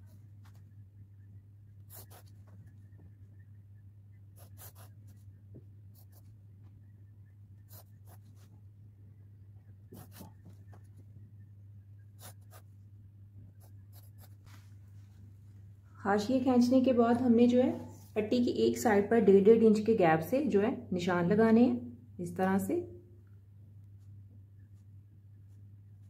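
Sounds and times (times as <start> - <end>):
steady low hum: 0.0 - 26.0
pencil drawn along ruler: 1.9 - 2.4, 4.4 - 5.3, 7.6 - 8.5.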